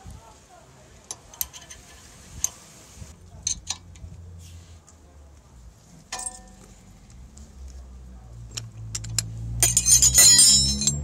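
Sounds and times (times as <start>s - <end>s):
tools jangling: 8.9s - 11.0s
wrenches clinking on metal: 8.9s - 11.0s.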